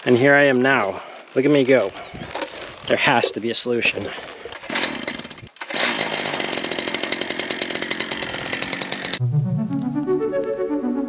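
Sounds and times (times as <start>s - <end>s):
brush cutter engine running: 4.6s - 9.2s
synthesizer music: 9.2s - 11.0s.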